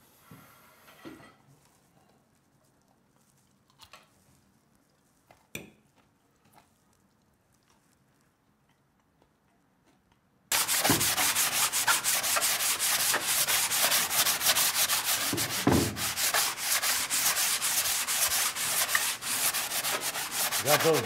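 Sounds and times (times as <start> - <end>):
sandpaper rubbing on wood: 10.5 - 21.0.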